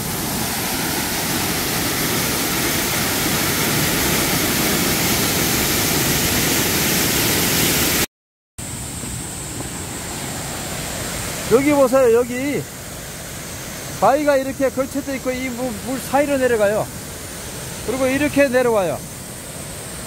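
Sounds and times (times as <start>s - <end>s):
waterfall rushing onto rocks: 0.0s - 8.1s, 8.7s - 20.0s.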